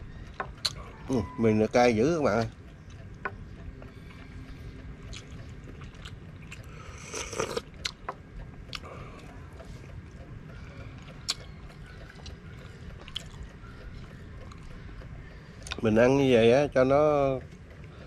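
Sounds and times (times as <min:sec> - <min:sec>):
steady low rumble: 0:00.0 - 0:18.0
person slurping noodles: 0:06.9 - 0:07.6.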